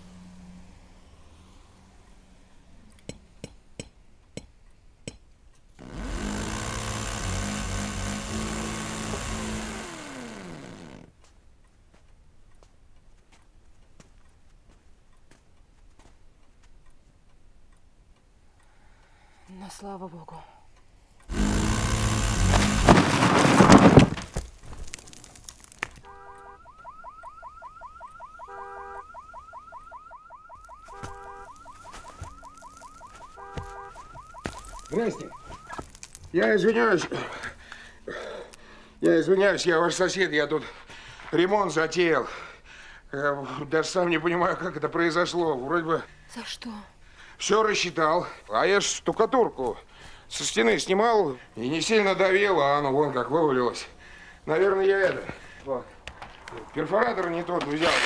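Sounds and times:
sharp clicks: 2.9 - 11.8, 21.2 - 23.0, 29.8 - 36.4
electric rotary hammer running: 5.8 - 11.1, 21.3 - 23.9, 32.0 - 36.0, 57.6 - 58.0
brick wall crashing down: 21.4 - 26.0
electronic alarm chirps: 26.1 - 35.9
steady alarm beeps: 26.1 - 35.9.

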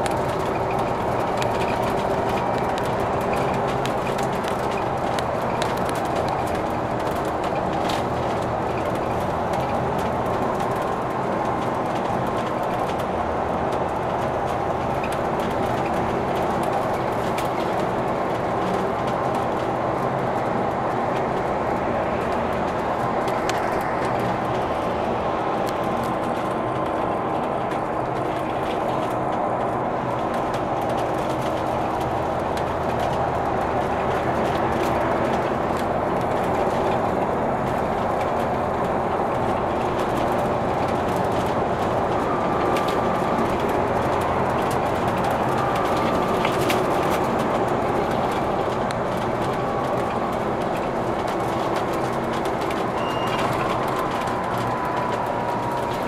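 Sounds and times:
bus engine drone: 0.0 - 56.0
tyres on the road: 0.0 - 56.0.

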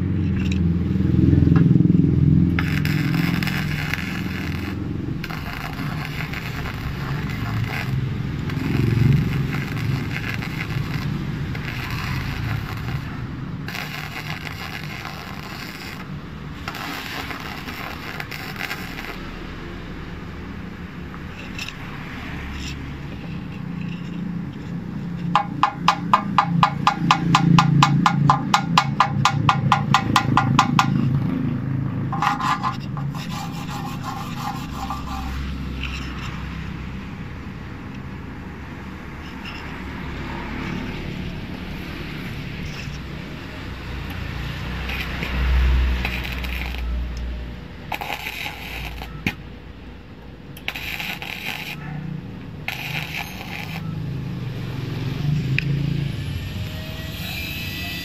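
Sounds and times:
welding arc crackling and sputtering: 2.2 - 19.6, 22.6 - 36.4, 40.7 - 49.4, 50.6 - 55.0
rapid metallic tapping on weld: 2.5 - 19.3, 25.2 - 31.2, 32.1 - 35.4, 44.9 - 45.4, 46.0 - 46.9, 47.9 - 49.4, 50.6 - 51.9, 52.7 - 53.9.

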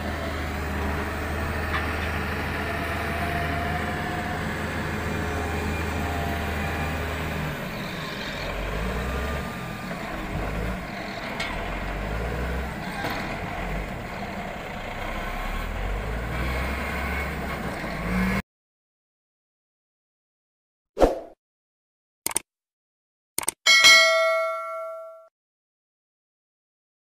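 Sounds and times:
heavy diesel engine working: 0.0 - 18.4.

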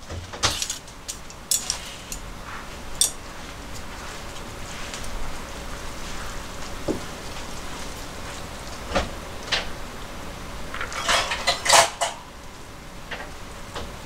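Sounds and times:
steady hiss: 0.0 - 14.0
water splashing and clattering: 10.7 - 12.2.

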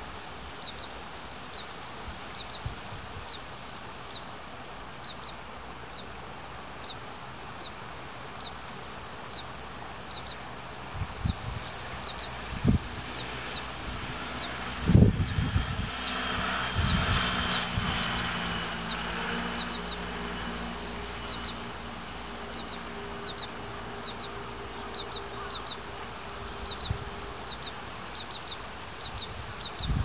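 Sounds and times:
wind buffeting microphone: 10.8 - 20.6, 26.4 - 27.7, 28.6 - 30.0
fledgling begging calls: 22.5 - 25.9.

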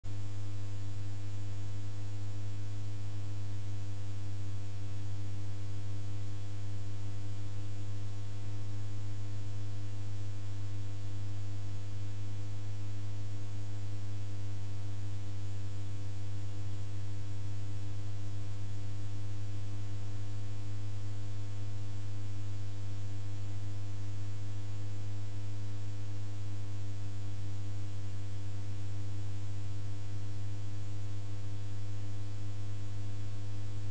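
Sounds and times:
low electrical hum: 0.0 - 33.9.

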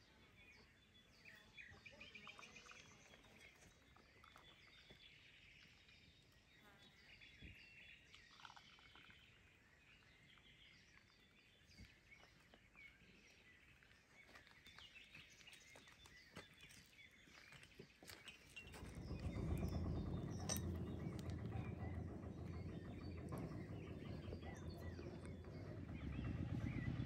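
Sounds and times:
small birds chirping: 0.0 - 27.0
low rumbling noise: 18.6 - 27.0.

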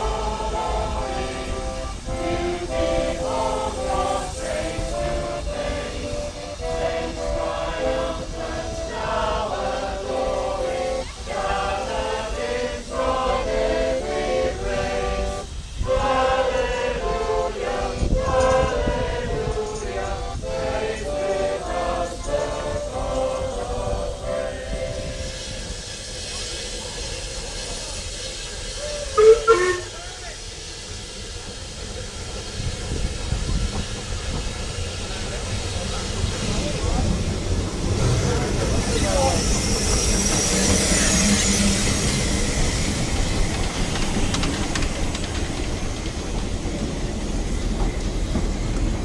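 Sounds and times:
choir singing: 0.0 - 26.0, 28.8 - 30.0, 34.2 - 49.0.

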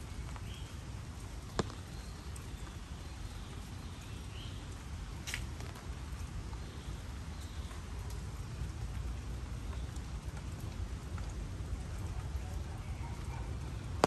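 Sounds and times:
footsteps on wet pavement: 0.0 - 6.7
light rain and dripping: 0.0 - 14.0.

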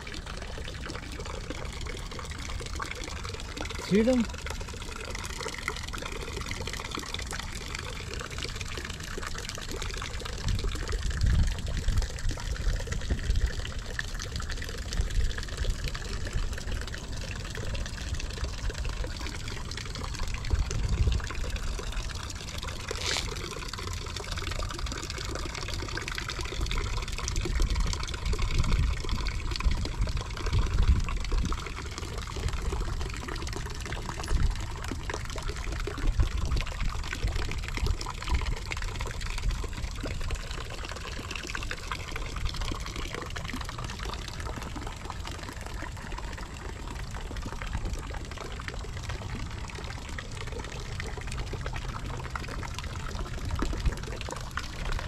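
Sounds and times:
fountain splashing into pond: 0.0 - 55.0
low rumbles on microphone: 20.0 - 21.8.

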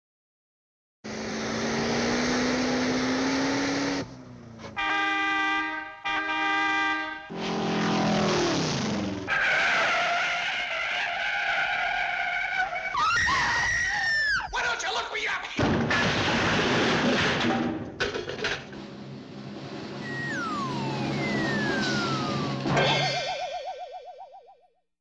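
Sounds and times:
car engine revving: 1.1 - 4.4, 7.3 - 9.3, 19.5 - 22.8
car horn blasts: 4.8 - 7.3.

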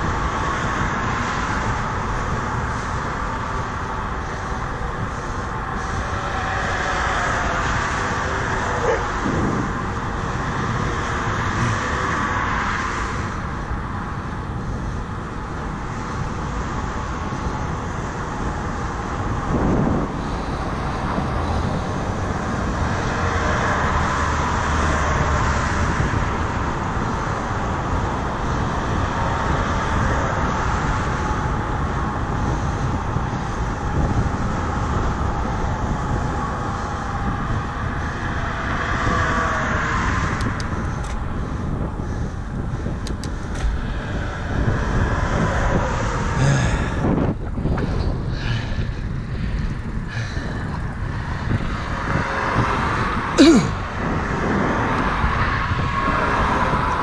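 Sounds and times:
road traffic passing: 0.0 - 57.0.

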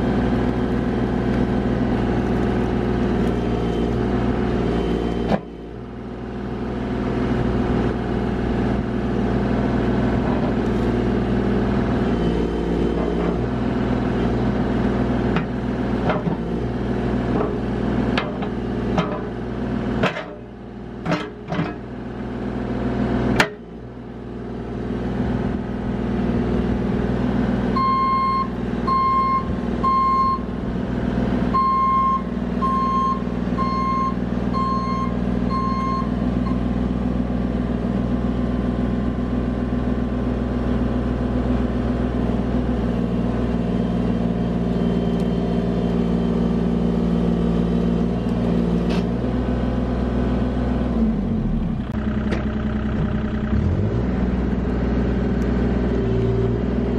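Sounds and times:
diesel engine running: 0.0 - 56.9
travel alarm beeping: 31.6 - 36.6.

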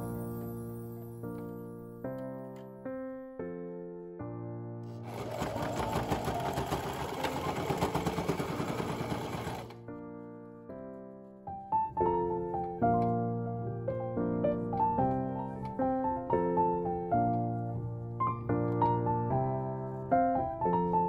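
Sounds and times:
soft piano music: 0.0 - 21.0
sewing machine ticking: 4.9 - 9.8.

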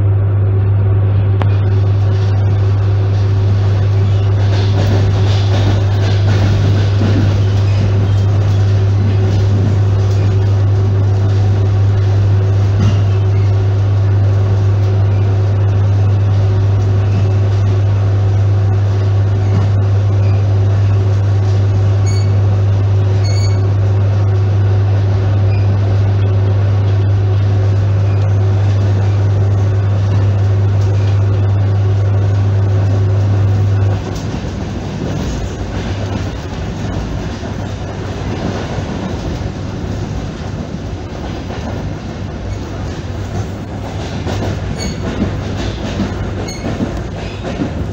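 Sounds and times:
low electrical hum: 0.0 - 6.2
wheels rumbling on rail: 0.0 - 47.9.

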